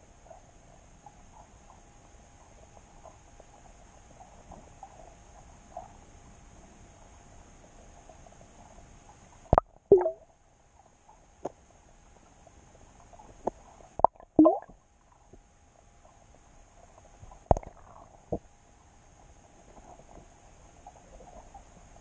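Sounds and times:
underwater clicks and knocks: 0:09.6 - 0:10.2, 0:13.5 - 0:14.8, 0:17.4 - 0:18.5.

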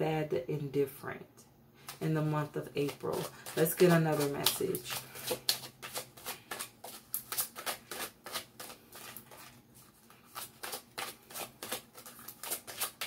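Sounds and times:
cards being shuffled: 0:02.8 - 0:13.0.

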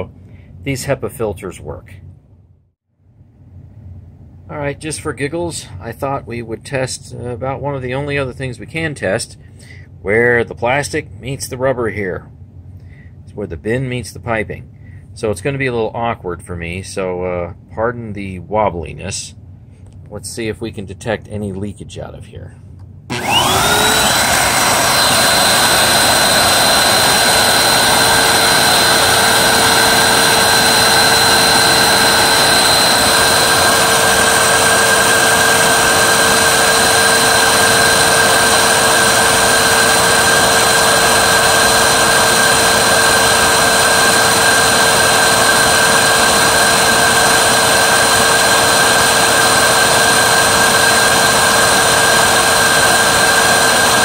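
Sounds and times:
vacuum cleaner motor whining: 0:23.1 - 0:54.0.

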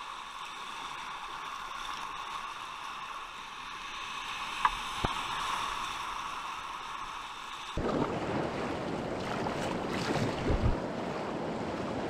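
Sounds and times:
river water rushing: 0:05.2 - 0:12.0.

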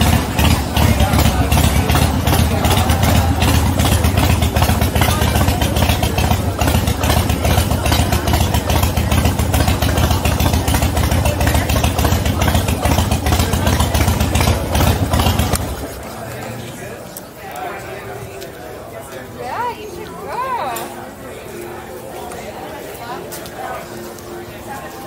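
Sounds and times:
motorcycle engine running: 0:00.0 - 0:16.9.

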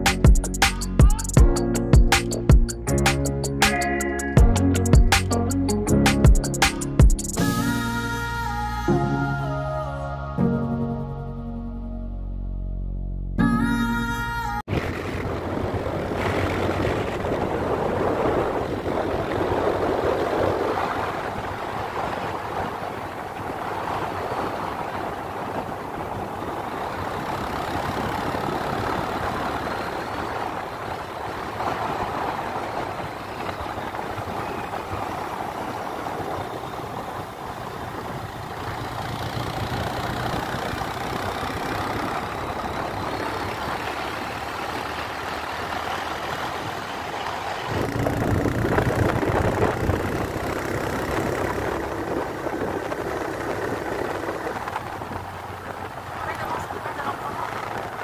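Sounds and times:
road and wind noise: 0:00.0 - 0:11.2, 0:13.8 - 0:58.0
vehicle engine running: 0:14.7 - 0:58.0.

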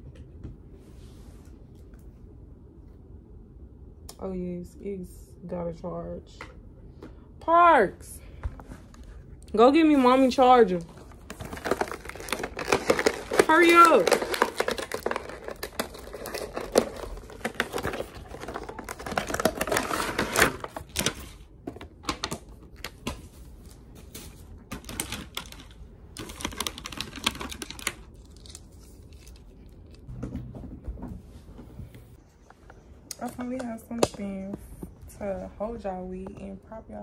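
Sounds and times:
packaging crinkling and rustling: 0:10.7 - 0:30.1.

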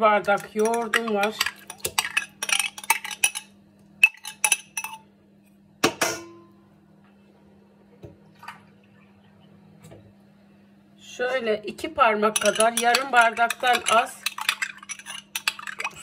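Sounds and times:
metal spoon clinking on bowl: 0:00.4 - 0:05.0, 0:12.4 - 0:15.8.

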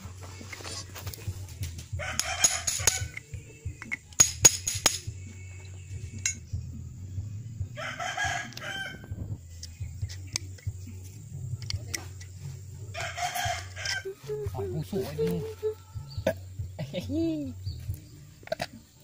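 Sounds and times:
rooster crowing: 0:01.9 - 0:03.2, 0:07.7 - 0:09.3, 0:12.9 - 0:14.4
metal parts clicking together: 0:02.2 - 0:05.0.

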